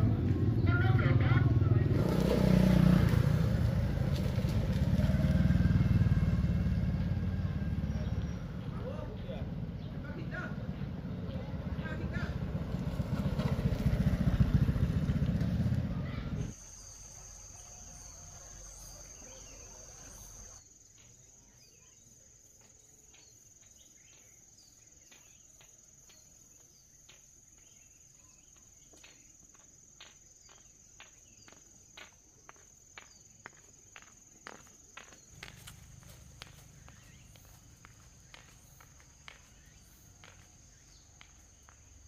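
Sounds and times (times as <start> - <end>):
high insect trill: 16.5 - 42.0
footstep-like ticks: 28.5 - 42.0.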